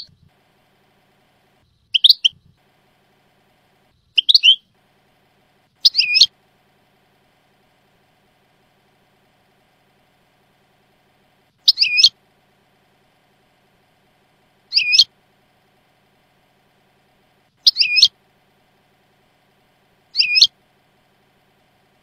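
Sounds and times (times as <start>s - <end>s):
goldfinch call: 4.2s - 4.6s, 5.8s - 6.3s, 11.6s - 12.1s, 14.7s - 15.1s, 17.6s - 18.1s, 20.1s - 20.5s.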